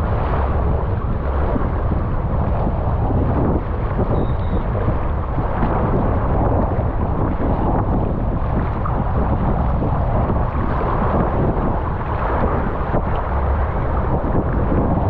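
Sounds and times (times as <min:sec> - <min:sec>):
rushing water with low rumble: 0:00.0 - 0:15.0.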